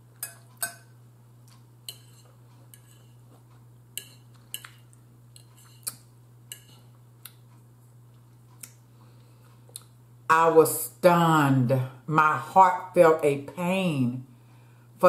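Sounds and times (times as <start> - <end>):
fork clinking on ceramic bowl: 0.2 - 0.9, 1.9 - 3.1.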